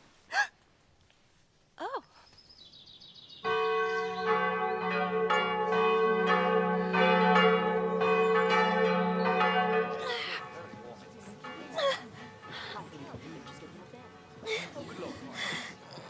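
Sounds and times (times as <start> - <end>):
bells pealing: 3.4 - 16.0.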